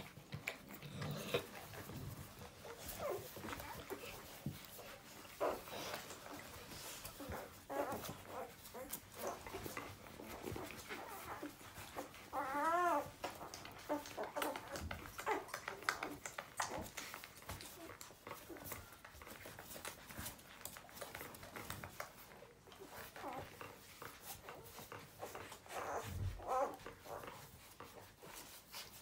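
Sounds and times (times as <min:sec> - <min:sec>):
puppies suckling clicks: 0:00.0 - 0:29.0
puppy whimpering squeal: 0:07.2 - 0:16.8, 0:24.6 - 0:27.5
puppy squeaks: 0:10.4 - 0:16.0.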